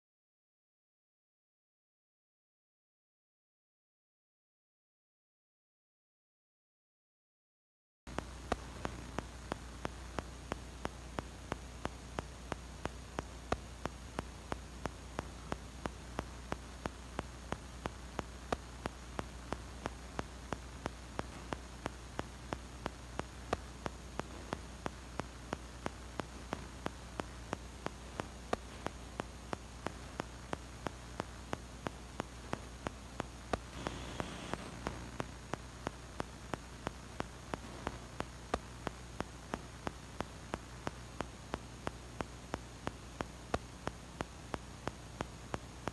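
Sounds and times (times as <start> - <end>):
electrical hum: 8.1 - 45.9
static hiss: 8.1 - 45.9.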